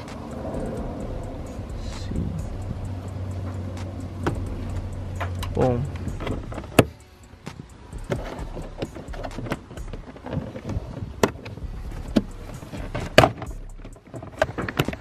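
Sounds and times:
rustling handling noise: 4.6 - 15.0.

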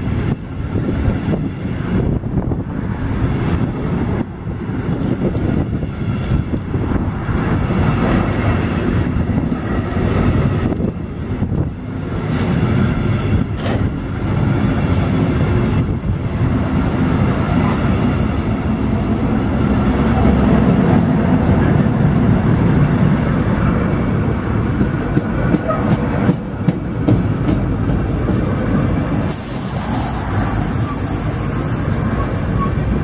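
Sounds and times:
freight train wheels rumbling: 0.0 - 33.0
wheels clacking over rail joints: 24.1 - 29.0
high hiss: 29.3 - 32.7.

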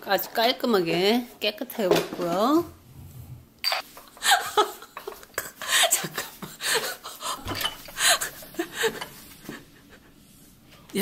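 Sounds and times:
cutlery and plates clinking: 3.6 - 4.1, 7.4 - 8.0.

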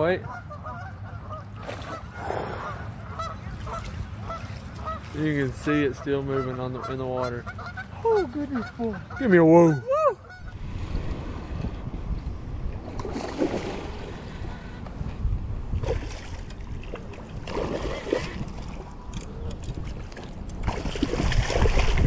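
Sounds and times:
wind rumbling on microphone: 9.9 - 22.0.

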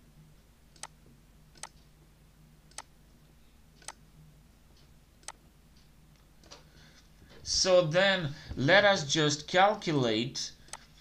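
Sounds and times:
faint low hum: 0.0 - 11.0
computer mouse clicks: 0.7 - 1.0, 1.6 - 1.9, 2.7 - 2.9, 3.8 - 4.0, 5.2 - 6.7, 10.7 - 10.9.

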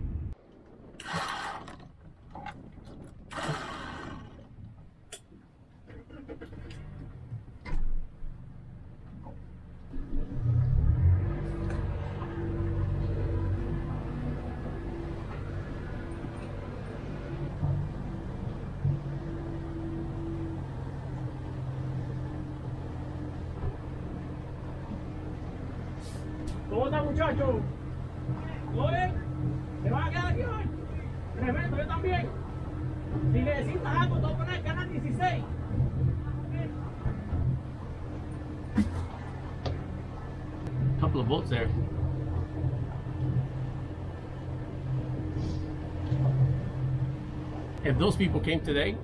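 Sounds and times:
water slapping boat hull: 0.4 - 8.1, 11.5 - 48.7
water splashes: 0.8 - 4.6
outboard motor humming: 1.0 - 5.0, 8.4 - 49.0.

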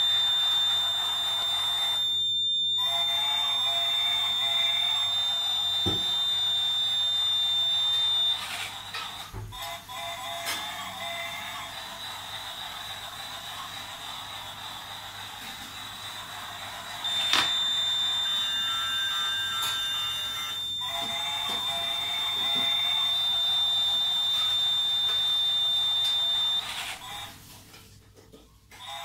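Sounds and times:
level-crossing buzzer beep: 0.0 - 9.0, 17.0 - 27.3.

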